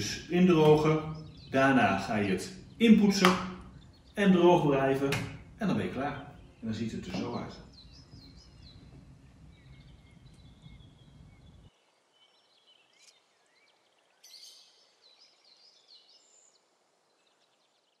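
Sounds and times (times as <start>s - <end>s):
low background rumble: 0.0s - 11.7s
faint birds chirping: 0.0s - 18.0s.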